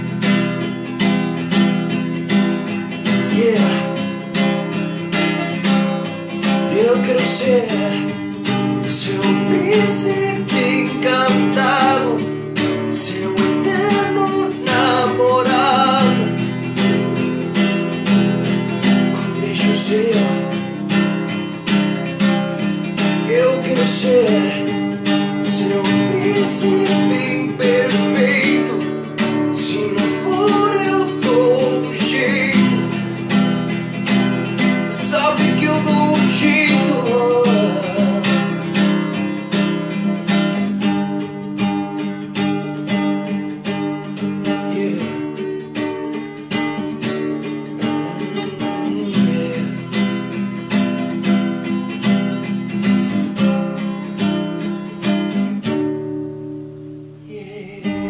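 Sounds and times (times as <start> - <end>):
classical guitar strumming: 0.0 - 58.0
person singing: 3.1 - 4.8, 6.6 - 17.4, 19.0 - 21.0, 23.1 - 33.2, 34.9 - 39.1, 44.2 - 45.8, 47.7 - 50.3, 57.2 - 58.0.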